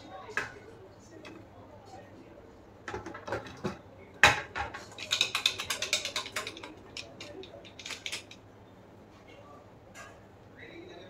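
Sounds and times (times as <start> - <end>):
steel trays and bowl clinking: 4.5 - 8.4.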